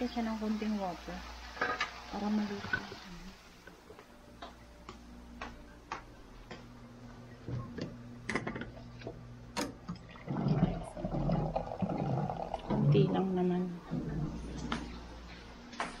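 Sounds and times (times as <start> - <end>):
steady low hum: 2.7 - 16.0
footsteps ticking: 3.9 - 7.2
water running into a mug: 9.9 - 13.1.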